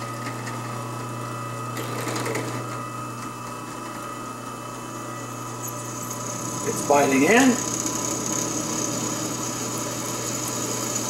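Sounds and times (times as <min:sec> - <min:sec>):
drill press motor humming: 0:00.0 - 0:11.0
scratchy drill bit noise: 0:01.8 - 0:02.7, 0:05.4 - 0:11.0.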